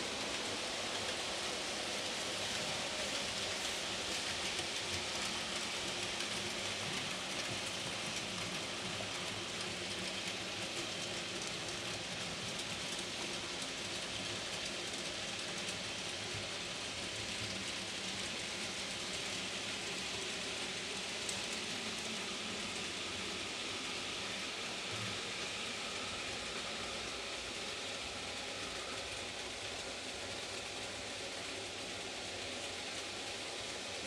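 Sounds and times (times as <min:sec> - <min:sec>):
model train rolling hiss: 0:00.0 - 0:34.0
wheels clicking on rails: 0:00.0 - 0:34.0.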